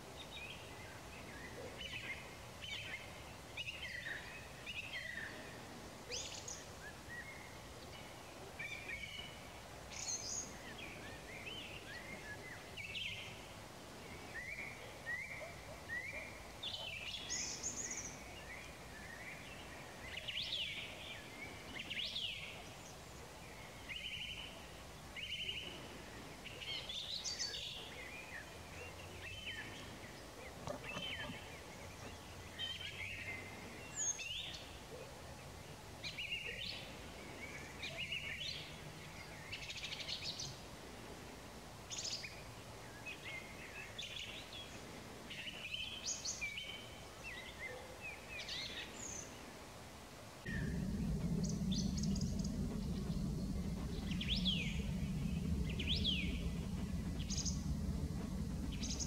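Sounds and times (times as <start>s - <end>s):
songbirds singing: 0.0s - 40.6s, 41.9s - 49.6s, 50.4s - 59.0s
steady background rush: 50.5s - 59.0s.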